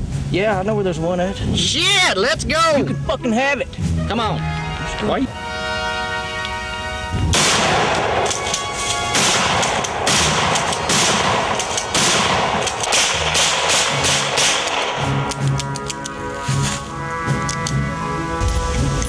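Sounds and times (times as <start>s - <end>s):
music: 0.0s - 19.0s
rapid gunfire: 7.4s - 15.4s.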